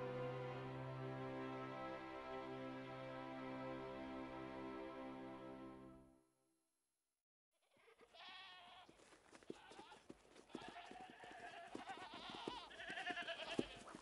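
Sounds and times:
sheep bleating: 7.6 - 13.9.

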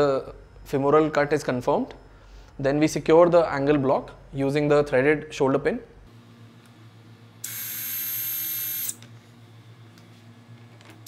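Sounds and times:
surgical drill whining: 7.4 - 9.1.

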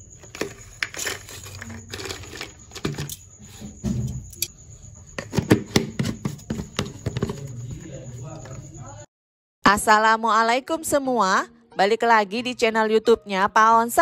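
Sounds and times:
crackers clattering into plastic jar: 0.2 - 3.2.

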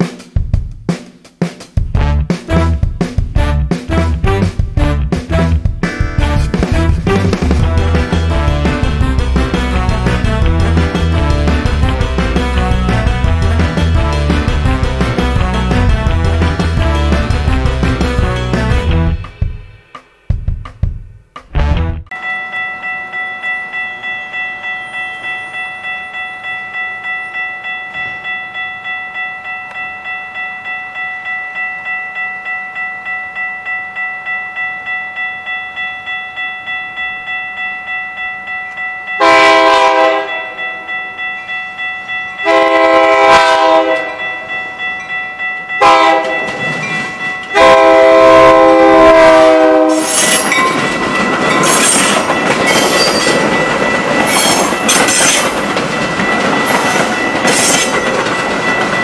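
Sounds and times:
train horn blasts: 2.0 - 5.6, 6.2 - 14.4, 15.2 - 19.2, 39.2 - 40.6, 42.4 - 44.3, 45.8 - 46.5, 47.5 - 50.5
train wheels rushing on rails: 2.5 - 20.4, 45.8 - 59.0
railroad crossing bell ringing: 22.1 - 59.0.

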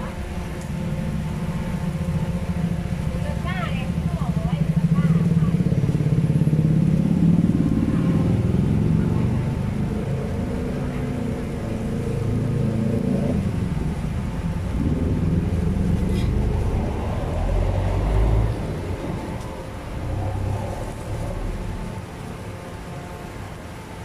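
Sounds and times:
vehicle engines passing: 0.0 - 24.0.

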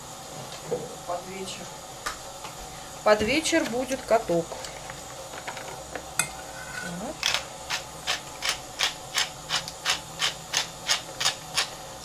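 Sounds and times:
pepper mill grinding: 7.2 - 11.8.

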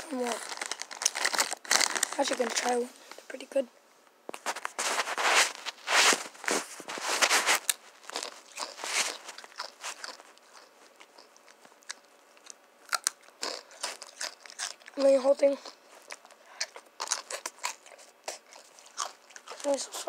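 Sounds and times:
tortilla chip crunching: 0.3 - 2.7, 5.9 - 20.0
chewing clicks: 9.4 - 15.0, 15.6 - 19.7.

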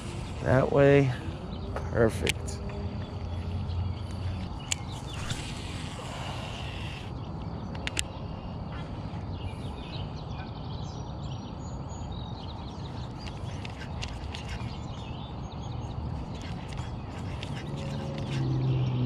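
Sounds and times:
small birds chirping: 0.0 - 19.0
sharp clicks: 7.7 - 8.1.

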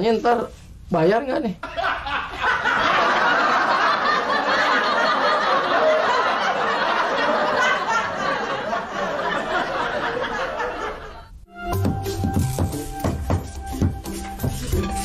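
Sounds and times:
audience laughing: 1.6 - 11.3.

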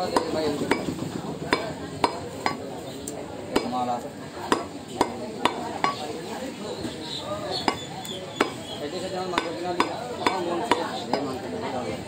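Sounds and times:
cleaver chopping on wooden block: 0.0 - 2.6, 3.5 - 3.8, 4.5 - 6.0, 7.6 - 8.7, 9.3 - 11.3.

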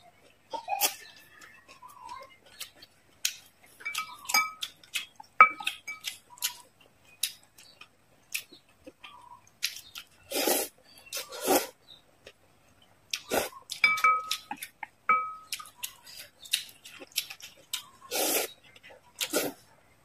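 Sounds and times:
chopsticks clinking on glass bowl: 3.8 - 4.7, 13.8 - 14.5, 15.1 - 15.7
noodle slurping: 10.3 - 11.7, 18.1 - 18.6, 19.2 - 19.6.

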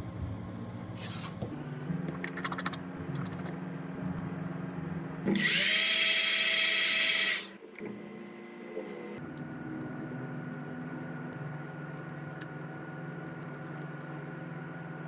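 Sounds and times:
small electric motor whining: 5.3 - 7.6.

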